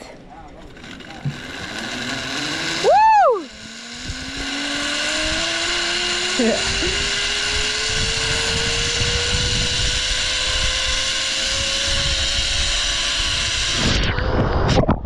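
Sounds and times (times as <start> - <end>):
zipline pulleys whining on cable: 0.0 - 14.8
rush of wind: 3.3 - 15.0.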